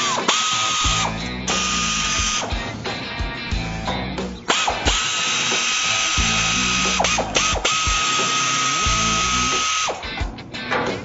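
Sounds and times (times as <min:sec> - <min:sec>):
air ratchet whining: 0:00.0 - 0:02.8, 0:03.6 - 0:10.8.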